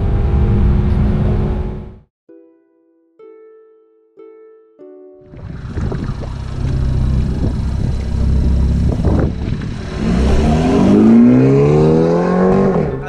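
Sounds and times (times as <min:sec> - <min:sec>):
car engine accelerating: 0:05.3 - 0:13.0.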